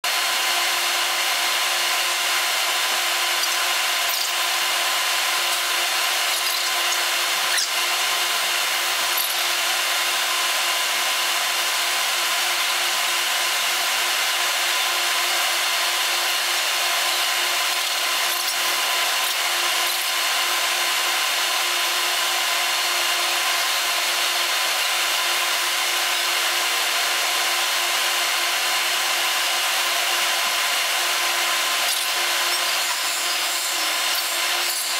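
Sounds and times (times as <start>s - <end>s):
machinery whirring and hissing: 0.1s - 34.9s.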